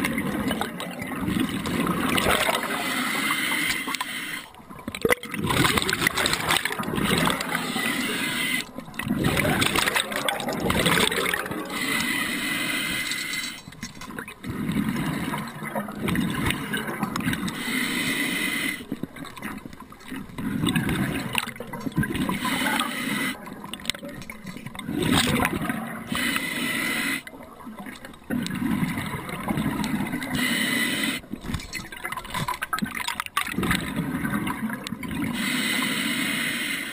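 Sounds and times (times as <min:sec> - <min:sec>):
bubbling exhales underwater: 0:00.0 - 0:03.0, 0:04.9 - 0:12.1, 0:24.6 - 0:26.2
hissing regulator inhales: 0:02.7 - 0:04.5, 0:07.6 - 0:08.7, 0:11.7 - 0:13.7, 0:17.5 - 0:18.9, 0:22.4 - 0:23.4, 0:26.1 - 0:27.3, 0:30.3 - 0:31.3, 0:35.4 - 0:36.9.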